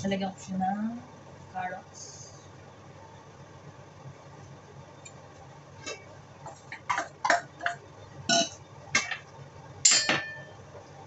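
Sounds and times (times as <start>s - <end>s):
kitchenware clinking: 5.9s - 9.2s, 9.9s - 10.6s.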